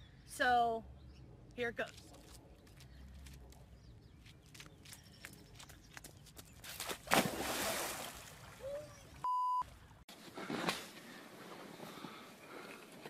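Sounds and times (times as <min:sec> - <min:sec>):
person splashing into water: 0:06.8 - 0:08.6
censor bleep: 0:09.2 - 0:09.7.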